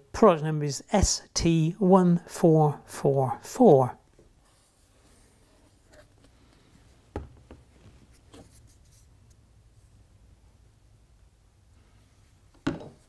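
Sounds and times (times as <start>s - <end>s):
handling noises on workbench: 12.5s - 13.0s.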